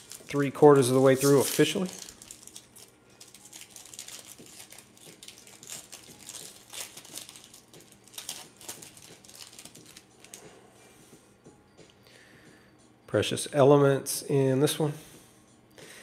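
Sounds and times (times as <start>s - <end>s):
foil wrapper crinkling and tearing: 0.0s - 10.4s.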